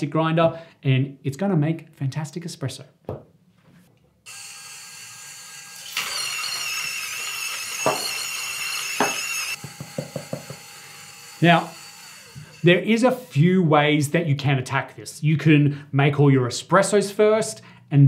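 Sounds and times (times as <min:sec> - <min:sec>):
coffee grinder motor whining: 0:04.3 - 0:13.4.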